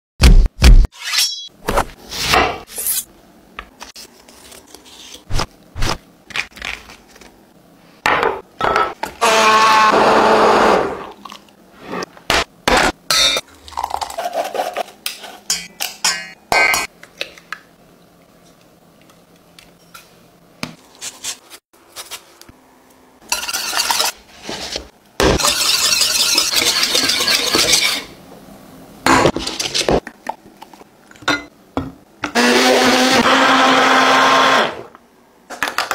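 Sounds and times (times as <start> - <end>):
utensils clinking on pot: 25.4 - 28.0, 31.1 - 31.5.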